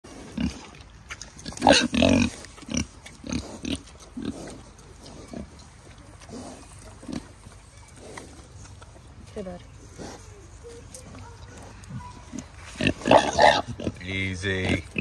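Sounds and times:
pigs grunting: 0.1s - 0.8s, 1.4s - 8.8s, 11.4s - 15.0s.

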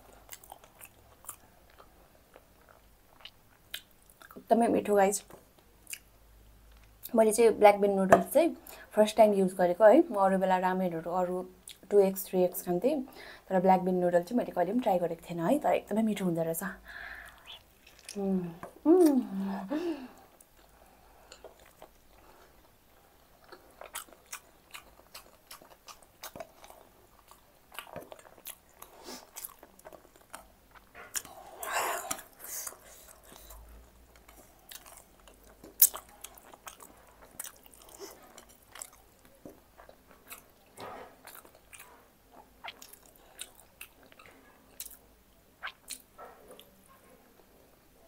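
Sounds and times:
chewing and biting food: 21.3s - 31.4s, 32.0s - 45.0s.

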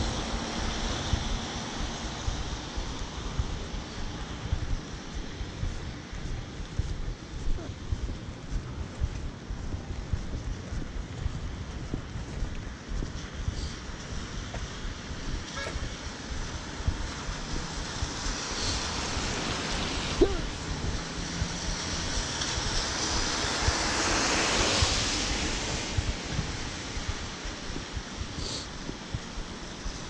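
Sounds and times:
car tyres hissing on wet street: 0.0s - 5.1s, 13.5s - 14.9s, 15.5s - 30.0s
rain pattering on umbrella: 16.2s - 30.0s.

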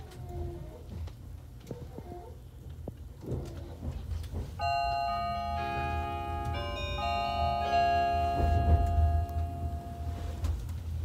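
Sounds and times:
low rumble of train running: 3.4s - 11.0s
electronic chime melody: 4.6s - 10.4s.

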